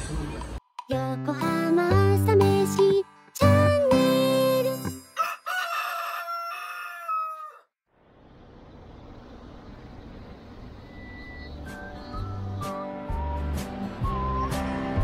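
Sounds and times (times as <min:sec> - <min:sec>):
outdoor street hum: 0:00.0 - 0:00.8, 0:07.8 - 0:15.0
rooster crowing: 0:05.2 - 0:07.7.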